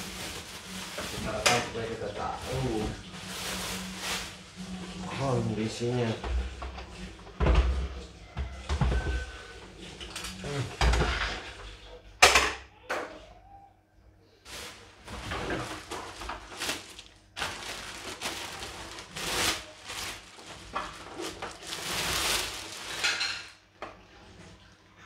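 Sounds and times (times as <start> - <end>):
plastic wrapping rustling: 0.0 - 5.7, 14.4 - 23.7.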